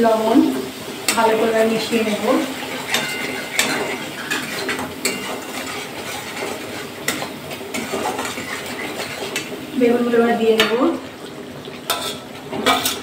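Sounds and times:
metal spatula scraping pan: 1.1 - 9.6, 11.9 - 13.0.

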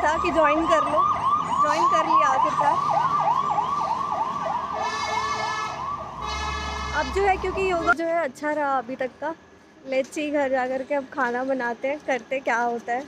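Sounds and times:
steady siren tone: 0.0 - 7.7
siren yelp: 0.0 - 7.9.

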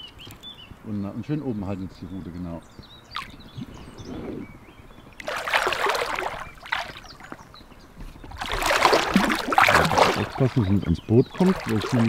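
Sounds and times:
water splashing: 3.0 - 12.0.

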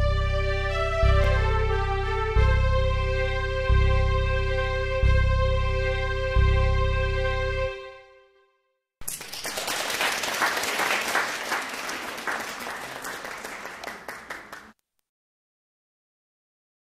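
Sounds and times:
audience applause: 9.0 - 14.8.

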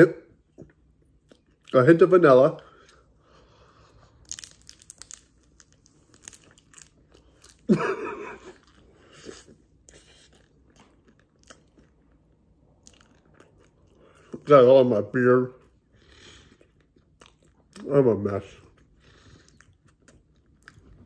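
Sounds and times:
crunchy pastry chewing: 3.7 - 14.5, 16.0 - 21.0.

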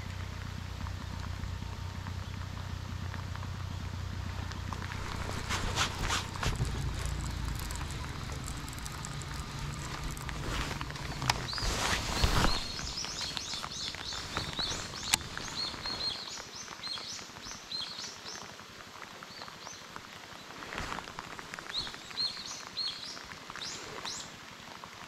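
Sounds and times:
rain pattering: 0.0 - 25.0
birds chirping: 0.8 - 18.4.

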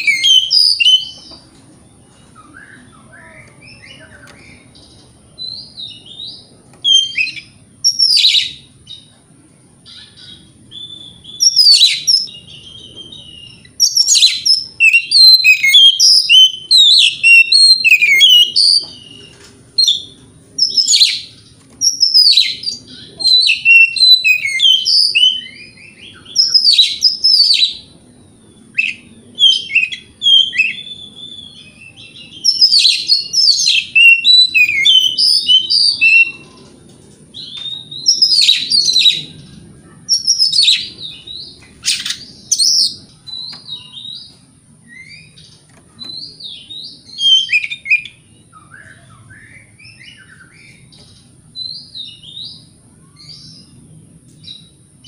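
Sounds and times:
bird singing whistles and chirps: 0.0 - 1.4, 2.2 - 9.1, 9.9 - 36.6, 37.4 - 39.5, 40.1 - 53.8.

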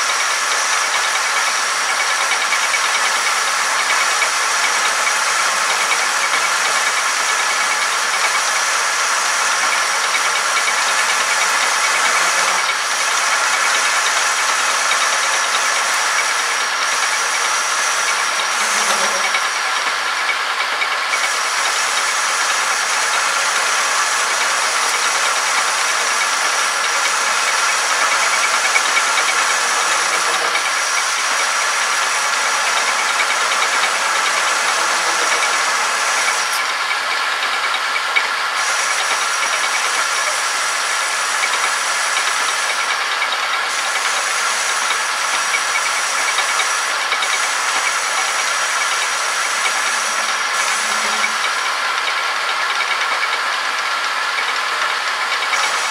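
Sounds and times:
metal lathe cutting: 0.0 - 55.9
high ringing tone: 18.0 - 19.8, 49.5 - 51.8.

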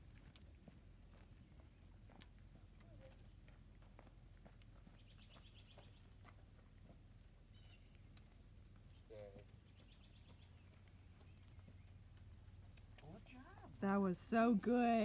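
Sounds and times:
faint songbird trill: 4.9 - 6.2, 7.5 - 8.1, 8.9 - 12.7.

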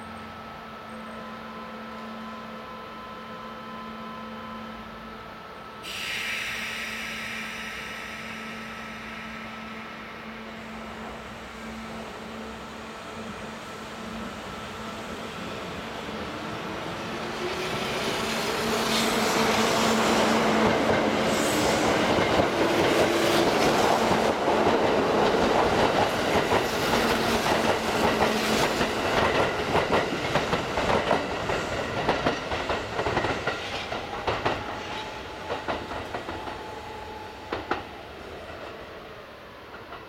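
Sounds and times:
electric train whine: 0.0 - 40.0.

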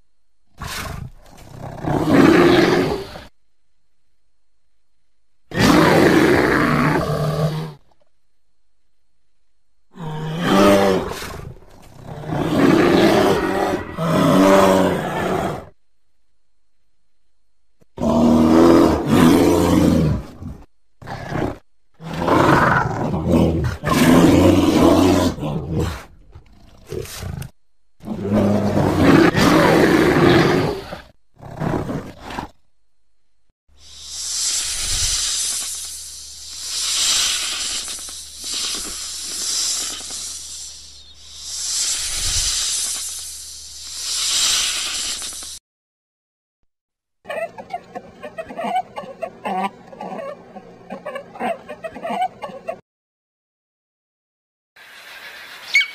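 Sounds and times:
bear roaring: 0.6 - 3.3, 5.5 - 7.8, 9.9 - 15.8, 18.0 - 32.5
snake hissing: 33.7 - 45.6.

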